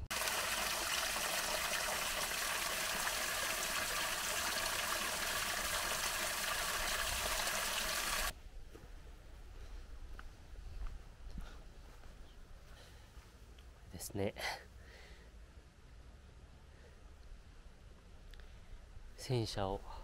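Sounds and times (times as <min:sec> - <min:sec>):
stream running water: 0:00.0 - 0:08.3.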